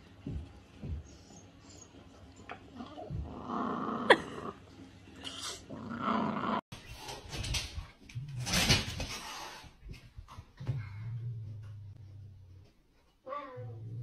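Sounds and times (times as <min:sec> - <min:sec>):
dog growling and grumbling: 0:02.7 - 0:04.6, 0:05.2 - 0:06.6.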